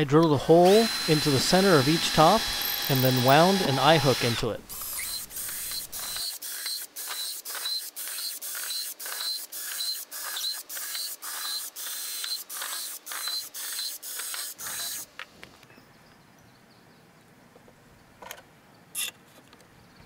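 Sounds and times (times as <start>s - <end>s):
cordless drill boring into wood: 0.2s - 15.1s.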